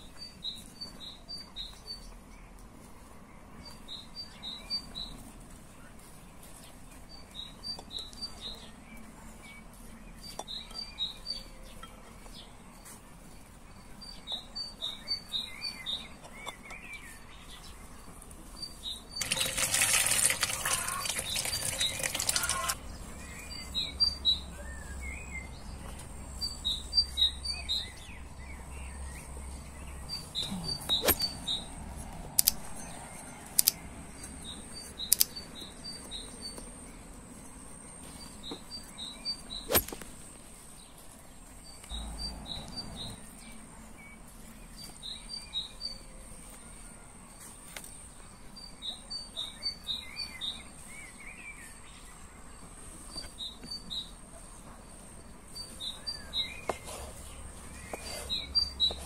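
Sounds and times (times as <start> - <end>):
small birds chirping: 0.0 - 59.0
running water splashing: 19.2 - 22.8.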